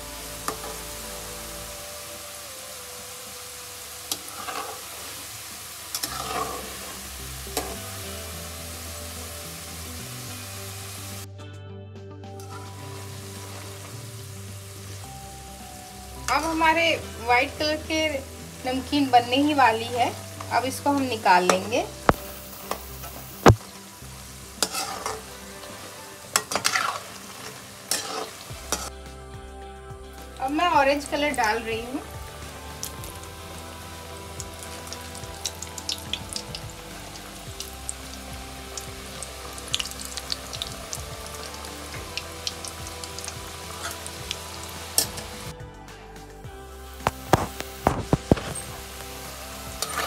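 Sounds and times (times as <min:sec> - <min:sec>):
dough deep-frying with sizzle: 0:00.0 - 0:11.3, 0:12.4 - 0:45.6, 0:46.3 - 0:50.0
metal spatula scraping pan: 0:24.6 - 0:25.3.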